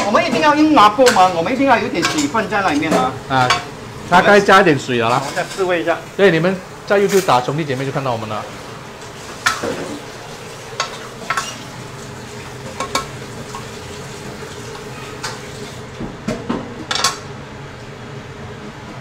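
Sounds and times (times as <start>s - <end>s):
food sizzling in a pan: 1.3s - 15.9s.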